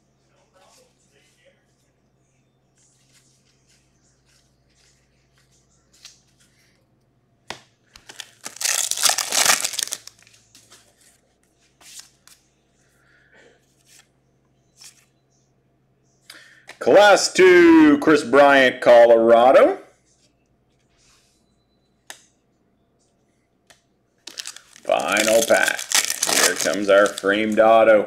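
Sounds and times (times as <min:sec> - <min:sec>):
wrapper tearing open: 0:08.1 - 0:10.3, 0:24.3 - 0:27.3.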